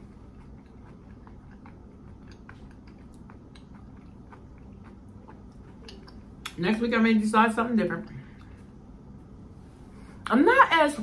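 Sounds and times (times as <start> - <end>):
person chewing crunchy food: 0.0 - 6.6
steady low hum: 0.0 - 11.0.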